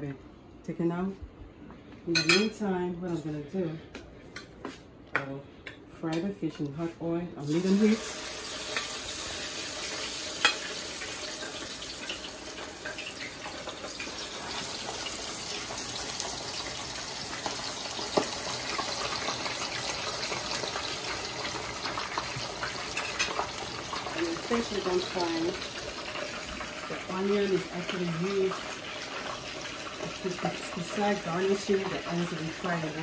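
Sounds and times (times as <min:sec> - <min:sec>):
fish deep-frying in hot oil: 0:07.4 - 0:33.0.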